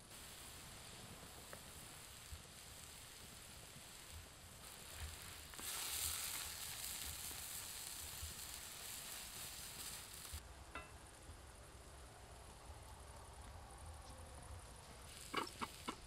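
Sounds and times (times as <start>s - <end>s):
grated vegetable sizzling in pan: 0.0s - 10.4s, 15.0s - 16.0s.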